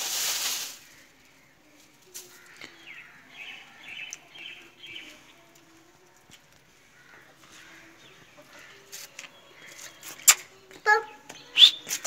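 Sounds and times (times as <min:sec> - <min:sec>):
rustling: 0:00.0 - 0:02.6
birds chirping: 0:00.6 - 0:06.0.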